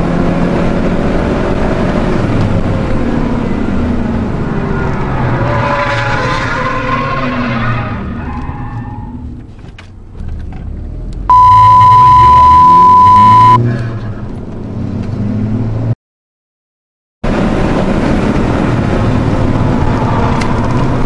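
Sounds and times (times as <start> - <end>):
car engine heard from inside: 10.1 - 13.6
censor bleep: 11.3 - 13.6.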